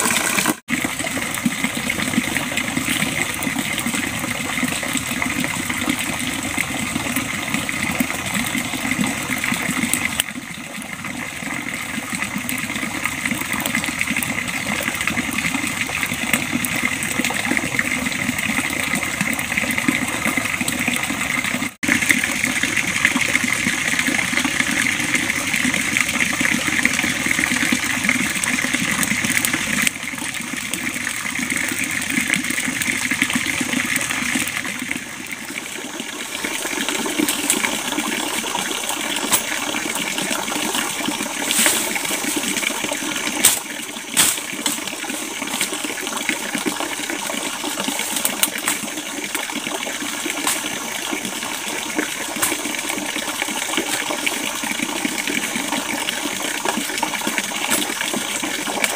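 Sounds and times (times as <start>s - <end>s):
stream and waterfall rushing: 0.0s - 0.6s.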